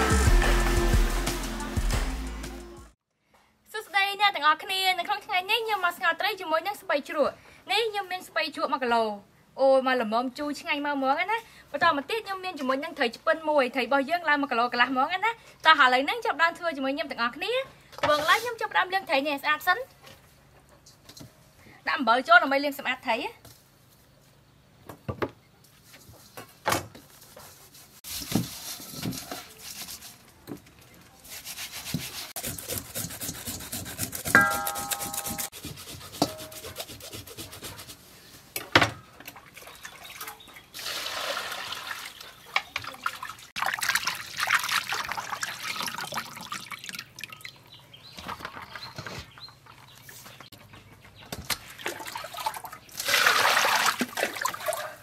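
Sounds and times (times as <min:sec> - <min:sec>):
hands rubbing fish with salt: 0:31.2 - 0:38.0
water pouring into bowl: 0:43.0 - 0:47.6.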